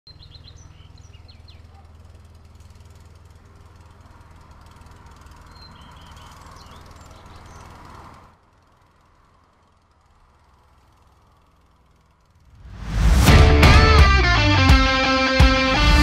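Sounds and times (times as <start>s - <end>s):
high bird chirps: 0.1s - 1.8s, 5.4s - 7.8s.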